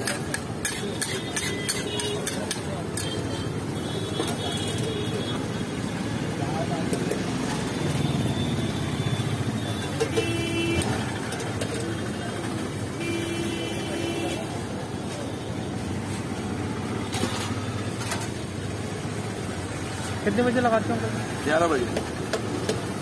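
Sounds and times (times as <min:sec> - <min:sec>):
street traffic rumbling: 0:00.0 - 0:23.0
vehicle horn honking: 0:10.0 - 0:11.0, 0:13.0 - 0:14.5.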